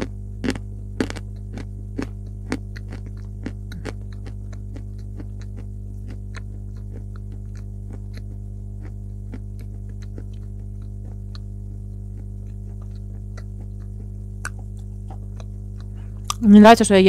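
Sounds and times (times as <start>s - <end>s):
chalk being chewed: 0.0s - 16.4s
low electrical hum: 0.0s - 17.0s.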